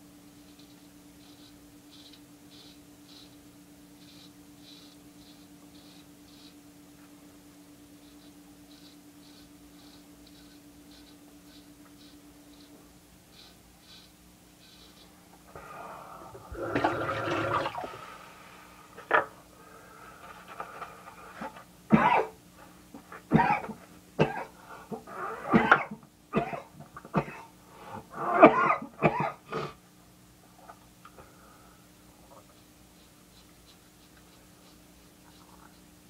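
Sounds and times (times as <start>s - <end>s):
man clearing throat: 21.9s - 22.4s, 23.3s - 24.5s, 25.5s - 27.5s, 28.3s - 29.8s
man coughing: 21.9s - 22.4s, 23.3s - 24.5s, 25.5s - 27.5s, 28.4s - 29.8s.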